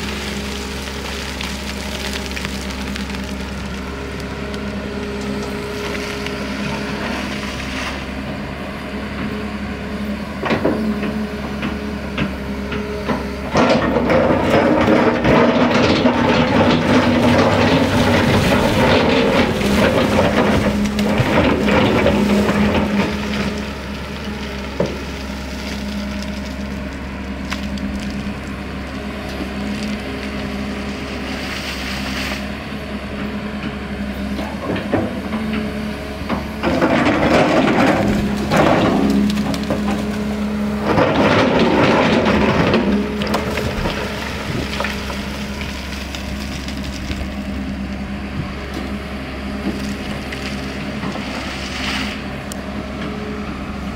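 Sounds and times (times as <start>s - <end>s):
excavator diesel engine running: 0.0s - 53.9s
bucket scraping and crushing stone: 13.6s - 26.8s, 36.6s - 47.5s.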